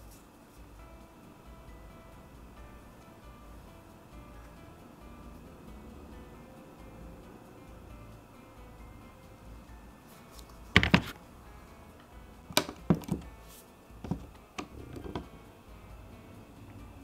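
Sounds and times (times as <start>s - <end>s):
phone knocking against plastic tray: 10.8s - 11.2s, 12.5s - 13.3s, 14.1s - 15.3s.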